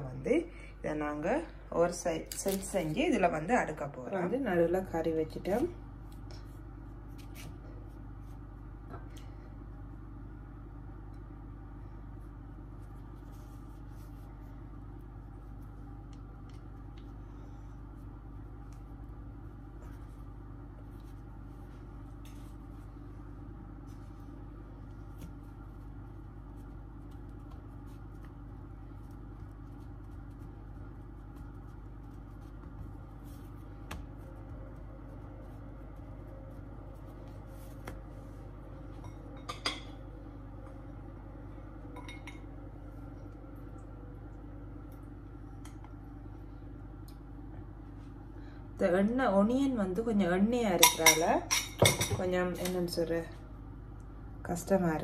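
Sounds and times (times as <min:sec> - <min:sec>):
steady low hum: 0:00.0 - 0:55.0
hands patting pastry dough: 0:12.4 - 0:22.9, 0:23.6 - 0:39.0.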